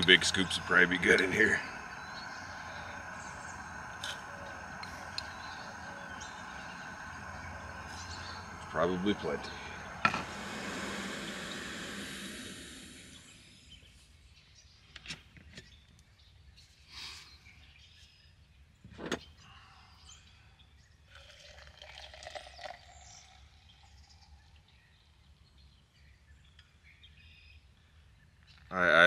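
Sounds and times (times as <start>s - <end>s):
water pouring into mug: 0.0s - 13.2s, 21.1s - 24.6s
camp stove burner hiss: 0.0s - 13.7s
faint birds chirping: 0.0s - 21.1s.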